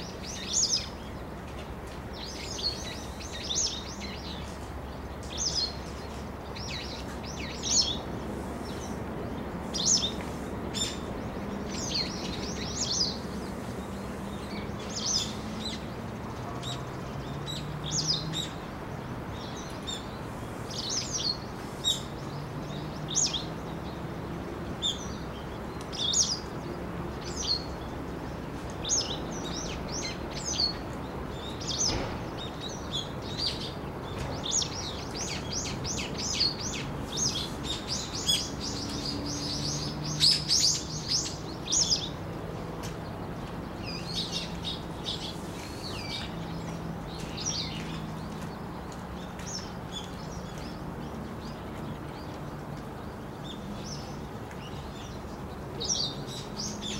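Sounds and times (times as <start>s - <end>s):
small birds chirping: 0.0s - 56.9s.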